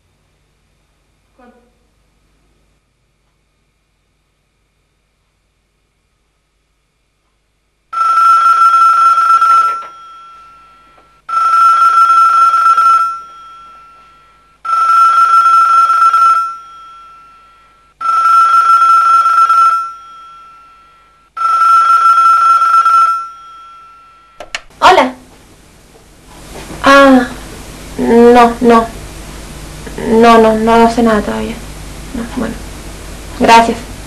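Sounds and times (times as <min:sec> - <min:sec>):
telephone bell ringing: 0:07.9 - 0:24.4.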